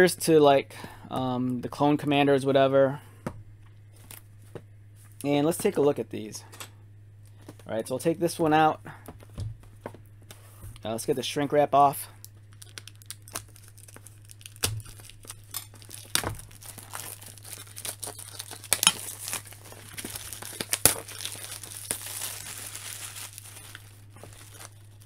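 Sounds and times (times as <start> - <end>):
plastic wrap crinkling and tearing: 12.2 - 25.0.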